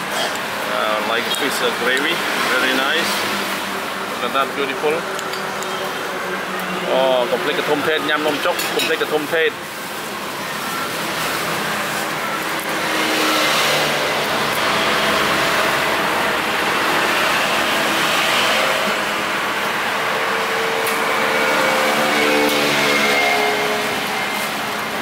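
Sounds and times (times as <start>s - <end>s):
road traffic passing: 0.0s - 25.0s.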